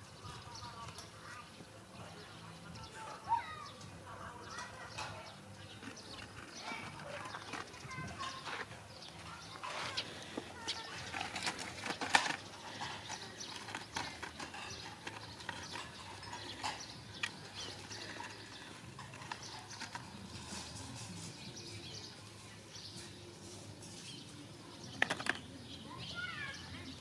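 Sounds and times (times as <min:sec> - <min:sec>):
dogs digging in sandy dirt: 0:04.8 - 0:25.0.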